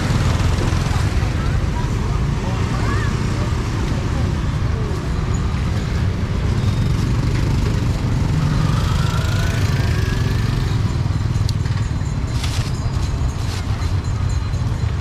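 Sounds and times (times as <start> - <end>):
street traffic engine rumble: 0.0 - 15.0
engine rising in pitch: 6.5 - 11.0.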